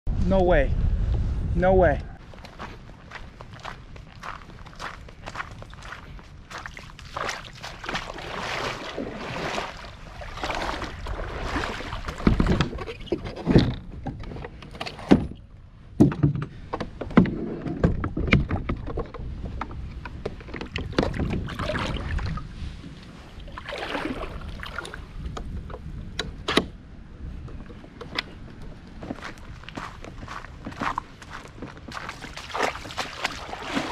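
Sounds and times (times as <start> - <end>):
kayak paddle swishing water: 5.9 - 13.2, 20.2 - 25.1, 31.3 - 33.9
sharp knocks and thumps: 12.1 - 15.4, 16.0 - 21.6.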